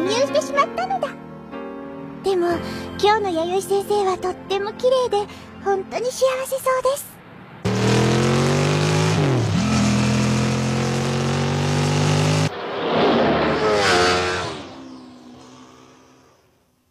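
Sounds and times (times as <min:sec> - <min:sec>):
engine sound falling in pitch: 0:07.6 - 0:16.8
vehicle engine running loudly: 0:07.7 - 0:16.4.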